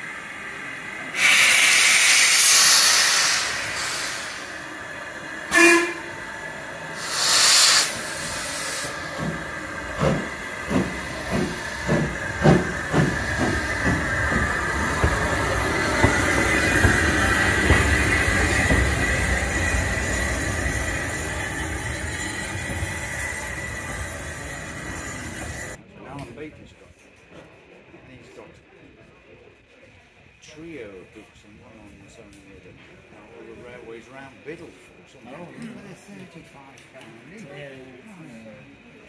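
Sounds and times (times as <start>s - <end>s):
steam hiss: 0.0s - 5.9s, 6.6s - 25.8s
train rumbling past: 0.0s - 25.8s
steam locomotive exhaust chuffs: 1.1s - 25.8s
steam locomotive whistle toot: 5.5s - 6.2s.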